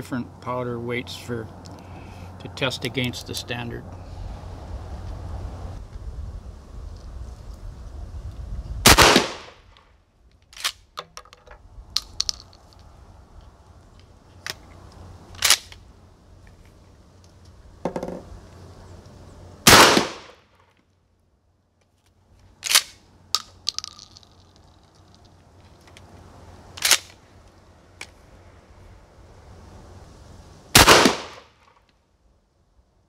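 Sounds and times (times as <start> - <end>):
shotgun shots echoing: 8.9 - 9.6, 19.7 - 20.4, 30.8 - 31.4
sharp clicks and cracks: 9.2 - 12.9, 14.0 - 15.8, 21.8 - 26.1, 26.8 - 28.2.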